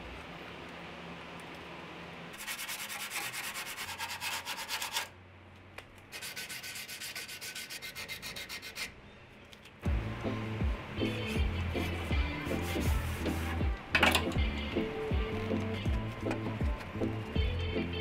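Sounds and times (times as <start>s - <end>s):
scrubbing strokes on a surface: 2.4s - 5.1s
loud music: 9.9s - 18.0s.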